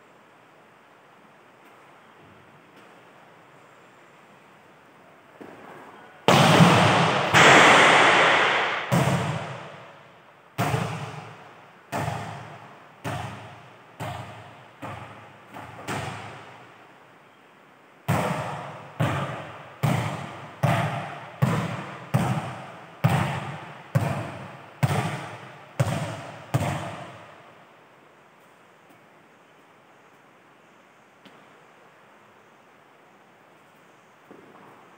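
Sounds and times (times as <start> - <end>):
volleyball bouncing on hard floor: 8.9 - 9.8, 10.6 - 16.5, 18.1 - 27.3.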